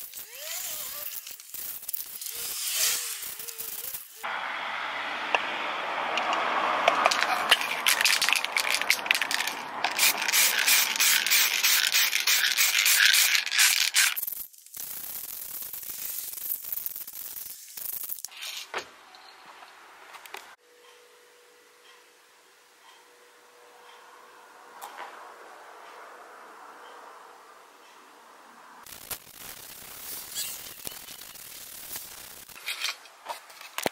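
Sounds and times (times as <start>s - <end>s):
spray paint hissing: 0.0s - 4.3s, 7.4s - 18.6s, 28.8s - 32.6s
spray can rattling clicks: 6.9s - 18.5s.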